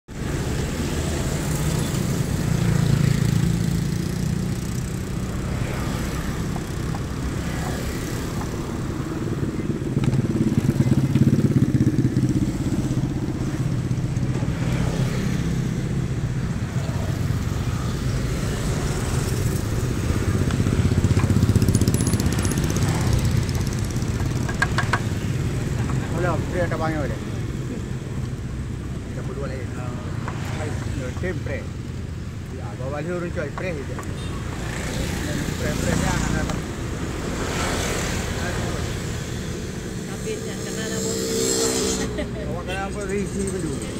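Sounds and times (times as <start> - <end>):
passing vehicles rumbling: 0.1 - 43.9.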